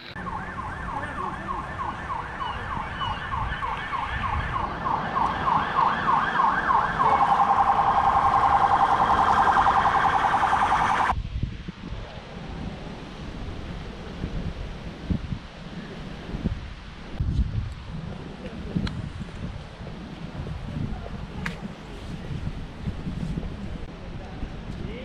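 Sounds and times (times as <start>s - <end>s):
emergency siren yelping: 0.1s - 11.1s.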